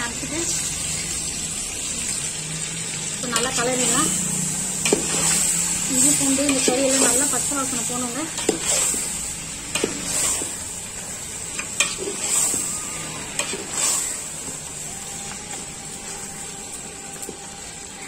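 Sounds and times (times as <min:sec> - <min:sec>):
food sizzling in hot oil: 0:00.0 - 0:18.0
spoon scraping a pan: 0:04.7 - 0:10.6, 0:11.4 - 0:14.6.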